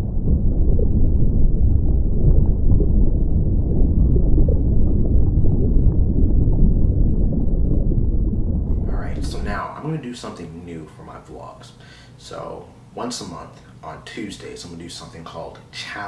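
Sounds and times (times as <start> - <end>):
deep muffled rumbling: 0.0 - 9.7.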